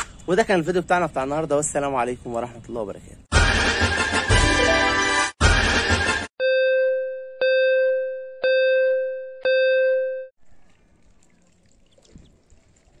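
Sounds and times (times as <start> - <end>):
ringing electronic ding: 6.4 - 10.3.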